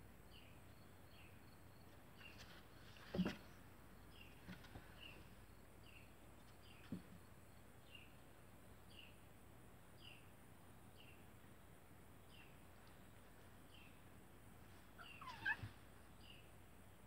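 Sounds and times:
cat yowling: 0:15.0 - 0:15.8.

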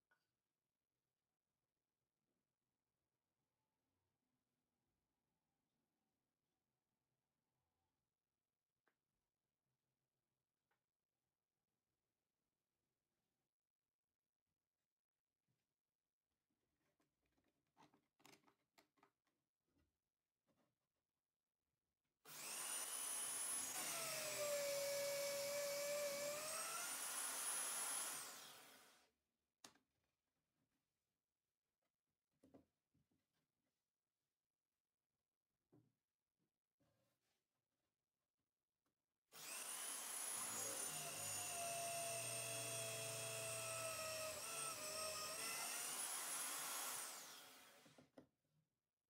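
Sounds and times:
electric drill boring into wood: 0:22.3 - 0:29.0, 0:39.4 - 0:48.0.

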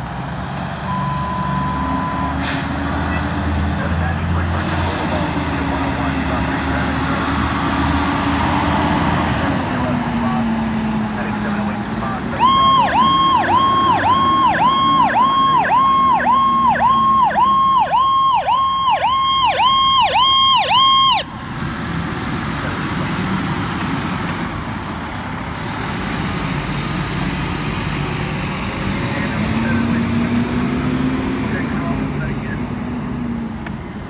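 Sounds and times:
fire engine passing: 0:00.0 - 0:34.0
electronic siren warbling: 0:12.3 - 0:21.3.

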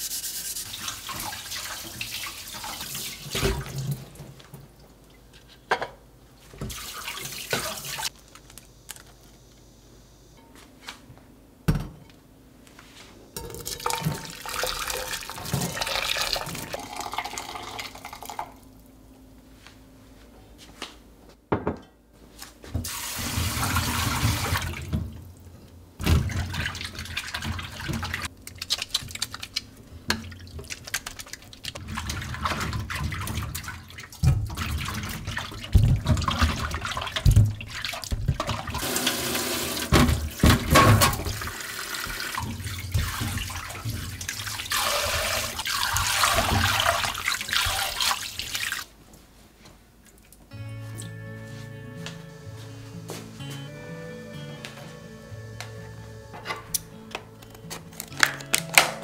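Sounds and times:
water splashing and sloshing: 0:00.6 - 0:05.4, 0:06.5 - 0:08.1, 0:22.8 - 0:49.0.

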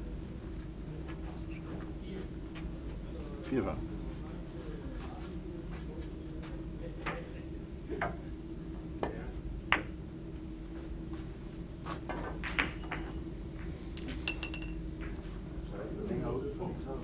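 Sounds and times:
steady low hum: 0:00.0 - 0:17.0
billiard balls clicking: 0:12.2 - 0:13.2, 0:14.0 - 0:15.2
short ringing clink: 0:14.3 - 0:14.8.

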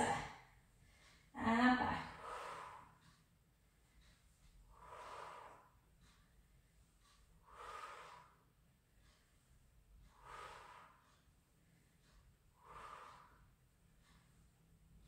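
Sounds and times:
person breathing heavily: 0:00.8 - 0:03.2, 0:04.6 - 0:06.2, 0:07.3 - 0:09.2, 0:10.0 - 0:11.2, 0:12.0 - 0:14.4.

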